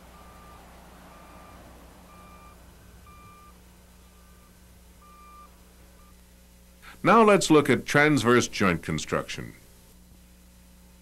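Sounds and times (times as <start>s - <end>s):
vehicle backup alarm beeping: 0.0s - 6.2s
low steady hum: 0.0s - 11.0s.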